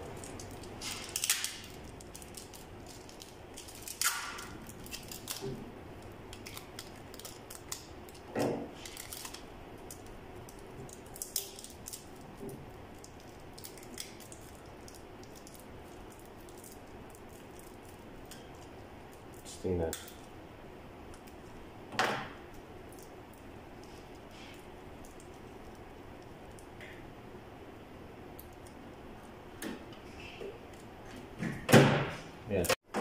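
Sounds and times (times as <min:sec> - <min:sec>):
adhesive tape tearing: 0:00.3 - 0:05.5.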